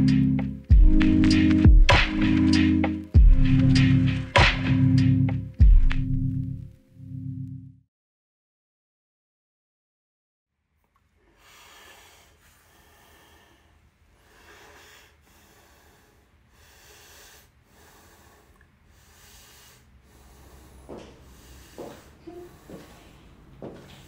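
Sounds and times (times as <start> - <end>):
person breathing heavily: 11.2 - 24.0.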